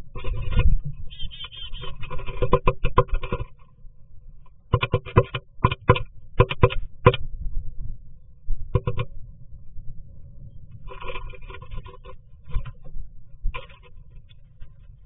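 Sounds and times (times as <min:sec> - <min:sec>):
bird tapping on wood: 0:04.7 - 0:07.2.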